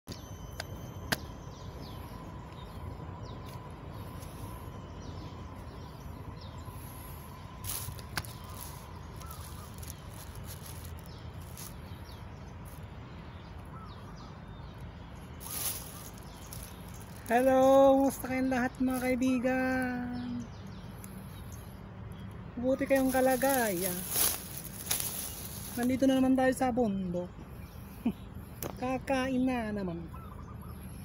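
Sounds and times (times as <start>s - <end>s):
faint bird chirps: 0.1s - 18.1s, 27.0s - 31.0s
steady low rumble: 0.3s - 29.2s.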